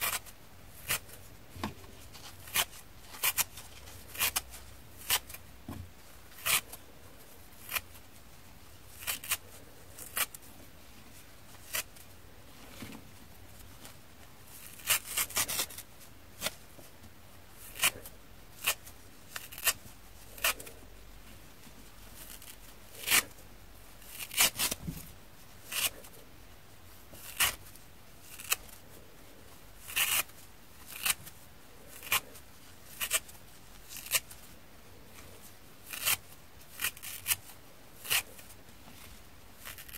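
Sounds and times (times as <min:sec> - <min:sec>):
sponge layers tearing: 0:08.9 - 0:09.4, 0:17.6 - 0:20.7, 0:31.9 - 0:34.2, 0:35.8 - 0:38.5, 0:39.6 - 0:39.9.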